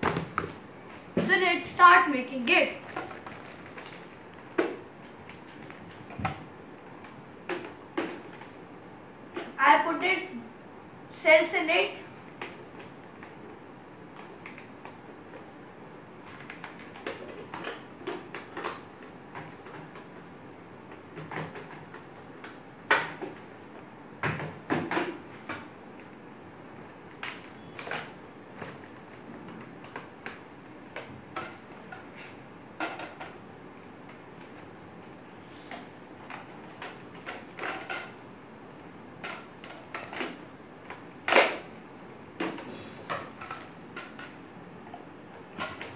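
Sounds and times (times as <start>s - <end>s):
plastic parts clicking and rattling: 2.8s - 8.6s, 16.2s - 26.1s, 26.8s - 41.8s, 42.4s - 45.9s.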